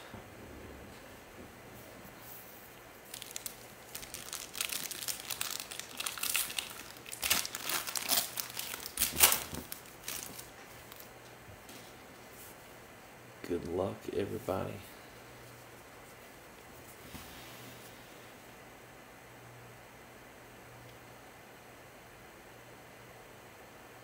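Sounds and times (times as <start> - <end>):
wrapper crinkling: 3.0 - 11.2.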